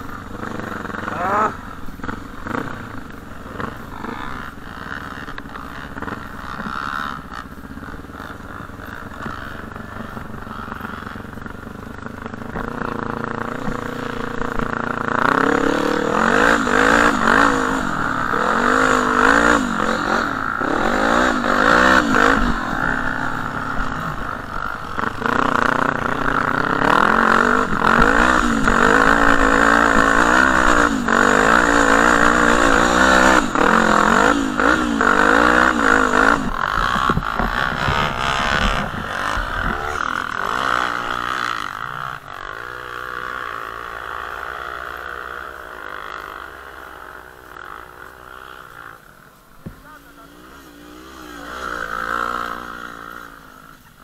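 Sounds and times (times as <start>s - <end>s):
off-road vehicle engine revving: 0.0s - 54.0s
wind rumble on microphone: 36.4s - 40.1s.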